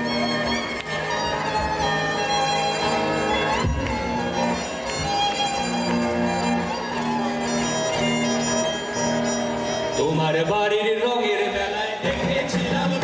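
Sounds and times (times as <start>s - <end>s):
violin held notes: 0.0s - 10.4s
live band playing: 0.0s - 13.0s.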